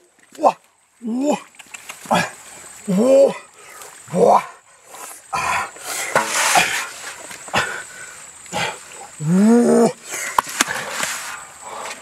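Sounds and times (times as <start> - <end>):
man grunting: 2.1 - 3.5.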